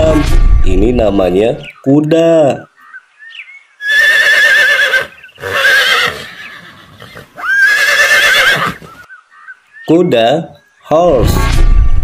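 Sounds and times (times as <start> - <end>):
horse whinnying: 3.8 - 9.1.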